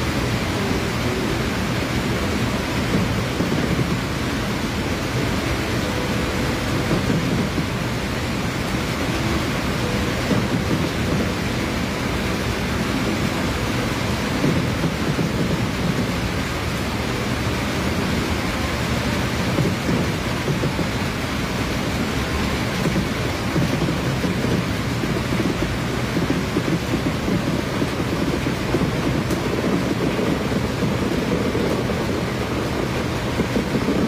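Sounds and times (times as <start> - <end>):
fireworks rumbling and crackling: 0.0 - 17.2, 17.8 - 34.0.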